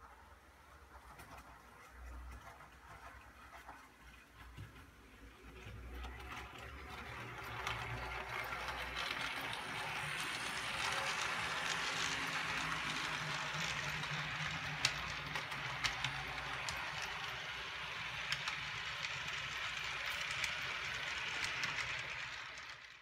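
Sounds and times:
wheels clicking over rail joints: 0:00.8 - 0:22.9
model train motor whirring: 0:05.3 - 0:23.0.

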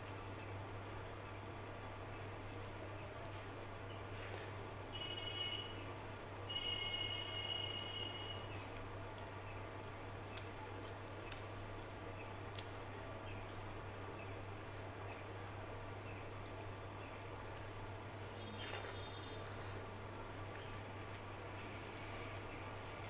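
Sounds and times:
fingers squishing rice: 0:18.4 - 0:22.0.

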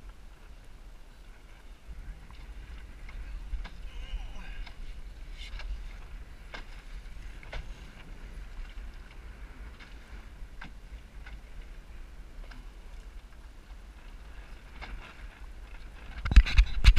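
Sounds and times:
water slapping against hull: 0:00.0 - 0:16.9
wind rumbling on microphone: 0:00.0 - 0:16.9.

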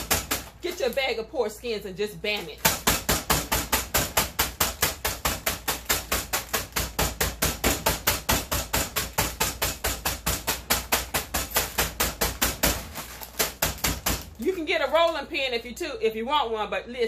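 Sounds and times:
fist pounding a snack bag: 0:00.0 - 0:01.0, 0:02.6 - 0:14.4.

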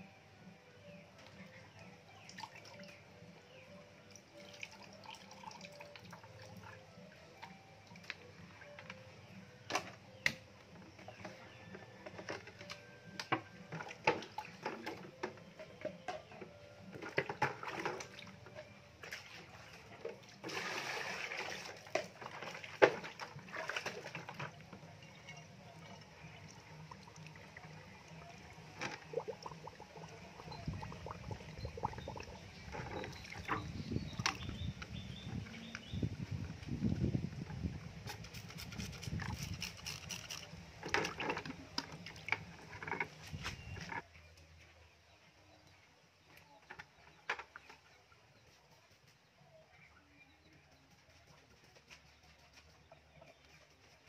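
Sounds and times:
water sloshing in a plastic bucket: 0:04.2 - 0:44.1, 0:46.3 - 0:48.7
water dripping: 0:22.9 - 0:36.0.

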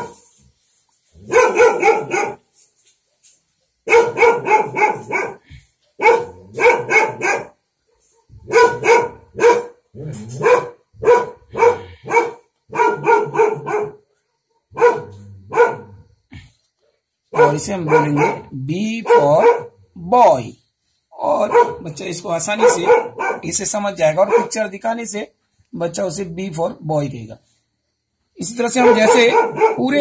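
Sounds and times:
dog barking: 0:00.0 - 0:00.2, 0:01.2 - 0:02.5, 0:03.8 - 0:16.1, 0:17.3 - 0:19.8, 0:21.4 - 0:24.6, 0:28.6 - 0:30.0.

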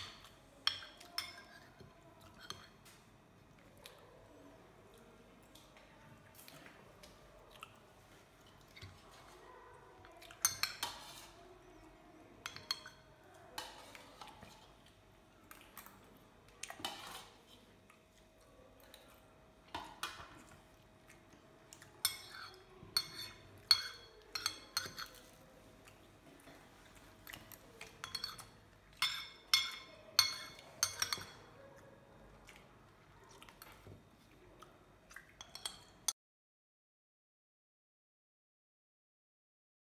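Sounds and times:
metal spoon clinking in ceramic bowl: 0:00.0 - 0:01.6, 0:10.4 - 0:11.3, 0:12.4 - 0:14.0, 0:22.0 - 0:25.3, 0:27.9 - 0:31.5, 0:35.4 - 0:36.1.

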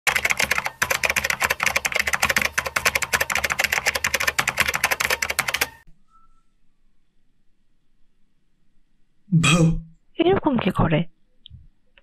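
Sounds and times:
rapid keyboard typing: 0:00.1 - 0:05.8.

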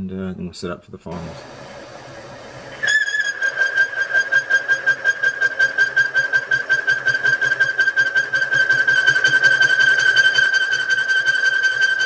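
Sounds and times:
milling cutter squealing on steel: 0:02.8 - 0:12.0.

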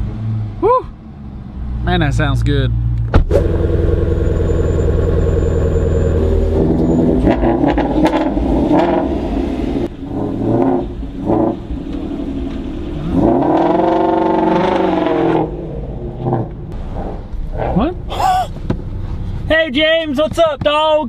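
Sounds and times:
car engine accelerating away: 0:02.9 - 0:18.2.

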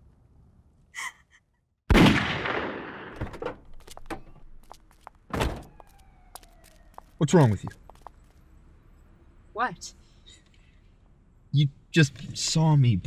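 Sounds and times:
loud gunshot with echo: 0:01.9 - 0:03.2.

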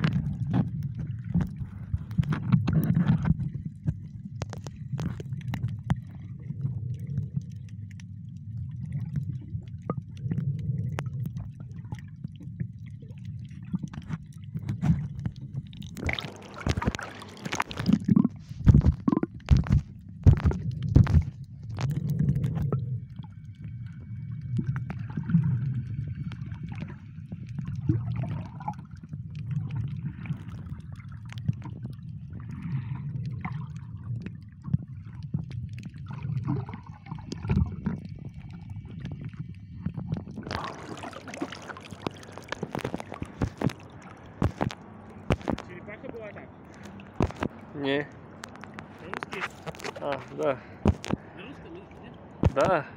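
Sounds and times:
underwater water rumble: 0:00.0 - 0:52.9
splashing: 0:13.0 - 0:22.7, 0:40.2 - 0:52.8.

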